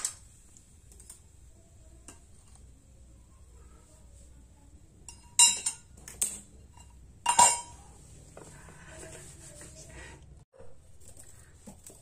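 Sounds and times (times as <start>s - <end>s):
metal lid clinking on stove: 5.1s - 7.8s.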